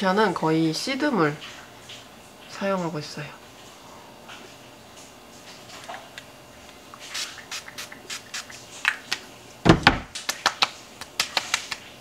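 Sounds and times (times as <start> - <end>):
spray bottle hissing: 7.0 - 8.6
thump: 9.7 - 10.1.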